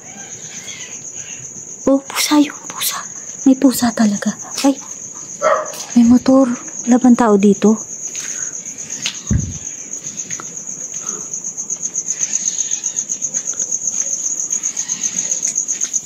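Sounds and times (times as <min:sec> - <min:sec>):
crickets chirping: 0:00.0 - 0:16.0
dull thump: 0:09.3 - 0:09.6.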